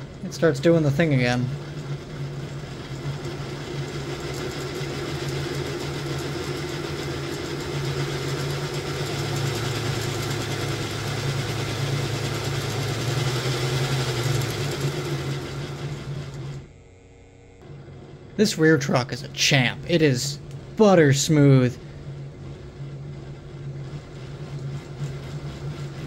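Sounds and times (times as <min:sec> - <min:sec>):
model locomotive mechanical hum: 0:00.0 - 0:26.0.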